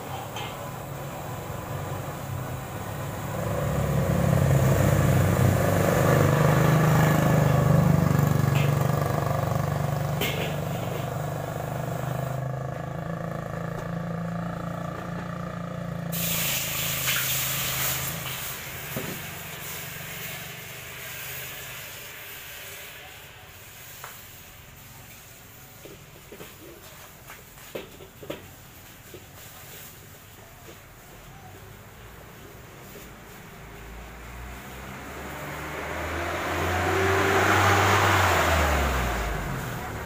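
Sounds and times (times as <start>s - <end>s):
gas burner roaring: 0.0s - 31.1s, 31.8s - 40.0s.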